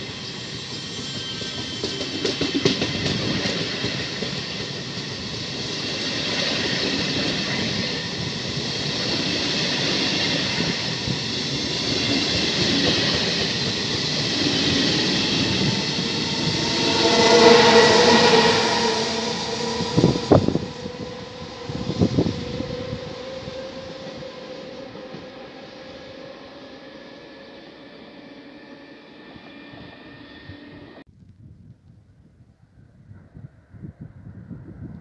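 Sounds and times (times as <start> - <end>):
train wheels rumbling on rail: 0.0 - 31.1
ringing squeal: 0.1 - 2.3, 14.4 - 31.0.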